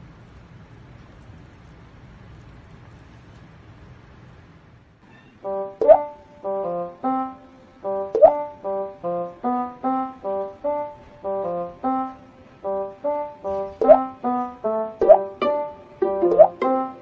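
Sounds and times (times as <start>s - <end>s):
light background melody: 5.4s - 17.0s.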